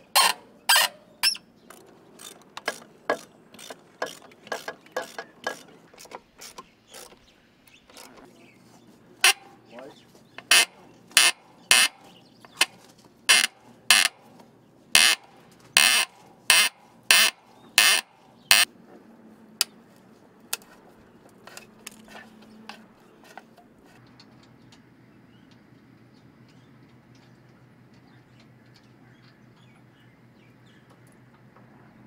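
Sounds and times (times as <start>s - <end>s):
ratchet wrench strokes: 2.2s - 7.2s, 15.8s - 18.7s.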